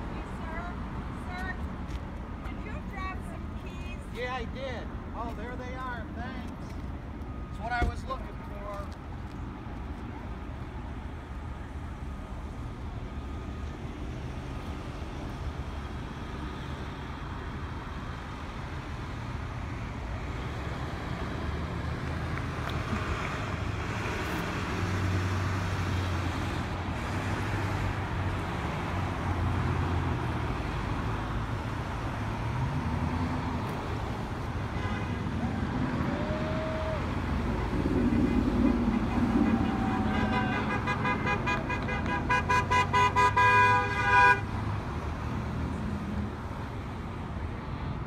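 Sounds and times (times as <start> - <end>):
vehicles driving past: 0.0 - 48.0.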